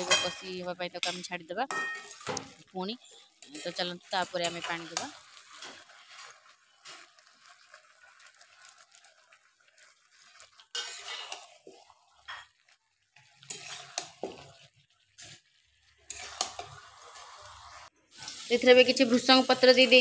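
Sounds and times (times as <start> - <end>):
light sizzling: 0.0 - 20.0
spatula scraping metal pan: 3.0 - 8.4, 9.8 - 18.5.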